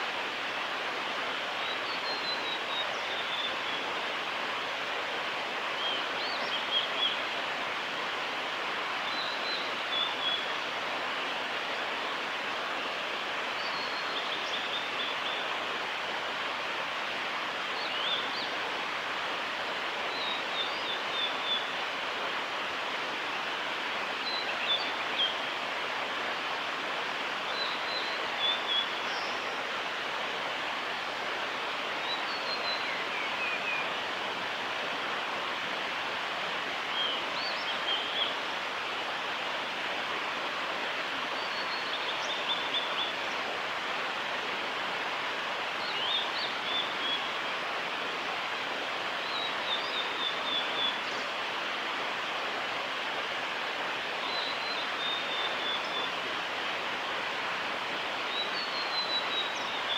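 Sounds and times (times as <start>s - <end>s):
steady rushing hiss: 0.0s - 59.9s
bird singing whistled notes: 9.1s - 10.5s, 17.8s - 18.5s, 24.2s - 25.4s, 27.5s - 29.4s, 36.9s - 38.4s, 45.8s - 47.3s, 54.3s - 56.1s, 58.3s - 59.9s.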